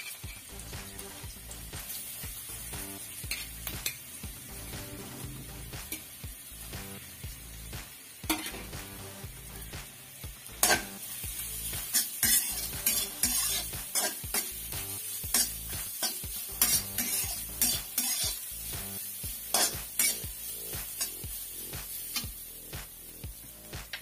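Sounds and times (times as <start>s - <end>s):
soft background music: 0.3s - 24.0s
spatula scraping metal pan: 11.9s - 14.5s, 15.3s - 18.4s.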